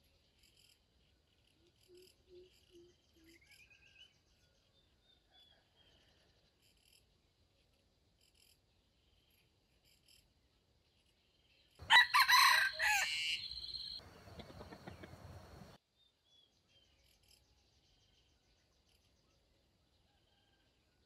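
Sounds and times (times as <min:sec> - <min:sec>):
faint insect chirping: 0:00.0 - 0:12.0, 0:12.6 - 0:15.8, 0:16.8 - 0:19.2
soft bird calls: 0:00.0 - 0:20.6
rooster crowing: 0:11.8 - 0:15.1.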